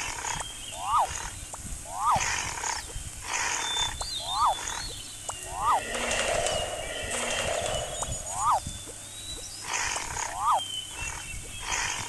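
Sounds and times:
rising and falling animal call: 0.8s - 1.3s, 1.9s - 8.8s, 9.7s - 10.6s
roaring and growling: 5.7s - 8.5s.

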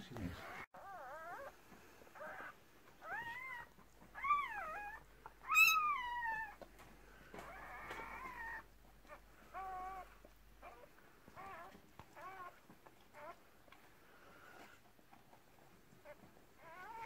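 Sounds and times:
puppy crying: 0.2s - 14.8s, 16.0s - 17.0s.

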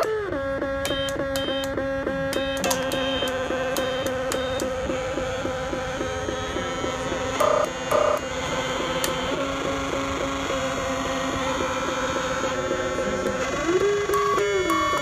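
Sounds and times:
buzzy pulsing synthesizer drone: 0.0s - 15.0s
short high beeps: 2.4s - 4.7s.

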